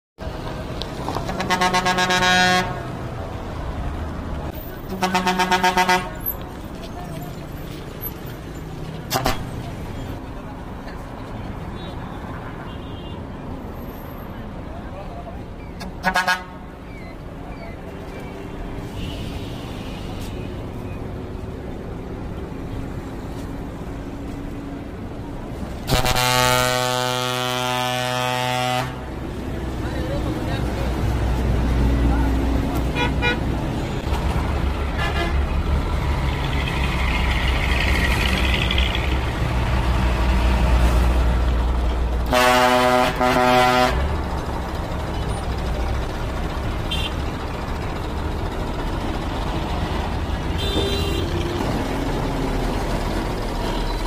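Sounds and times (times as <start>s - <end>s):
bus engine running low: 0.2s - 11.7s, 13.4s - 54.0s
stuttering air horn blasts: 1.2s - 2.8s, 4.9s - 6.3s, 16.0s - 16.6s, 25.9s - 29.1s, 32.9s - 33.5s, 35.0s - 35.4s, 42.3s - 44.1s, 50.6s - 51.3s.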